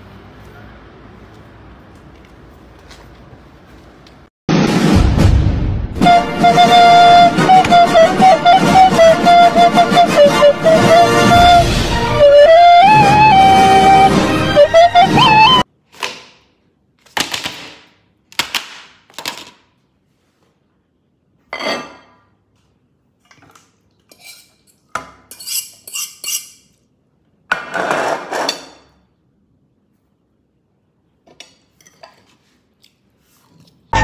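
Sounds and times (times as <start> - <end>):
music: 4.5 - 15.6
plates and fork clinking: 21.5 - 22.2.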